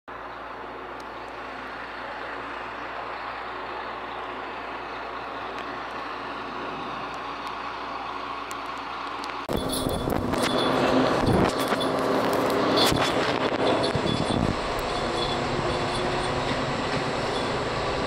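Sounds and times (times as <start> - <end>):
diesel train engine drone: 0.1 - 18.0.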